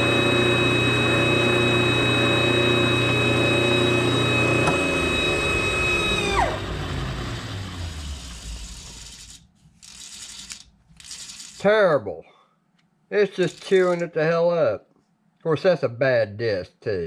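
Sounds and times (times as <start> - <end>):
air grinder whining: 0.0 - 6.8, 7.5 - 9.5.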